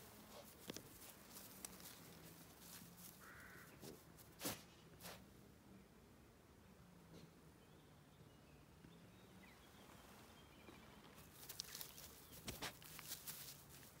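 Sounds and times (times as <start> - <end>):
close rustling and clicking: 0.0 - 3.2, 11.2 - 14.0
faint distant birdsong: 0.0 - 14.0.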